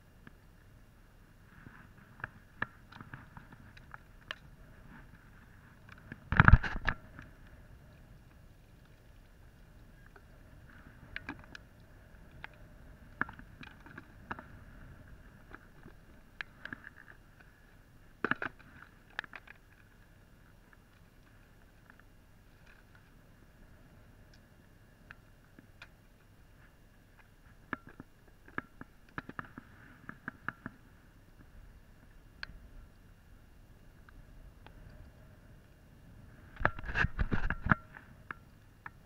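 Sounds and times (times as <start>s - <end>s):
small clicks: 5.8s - 17.6s.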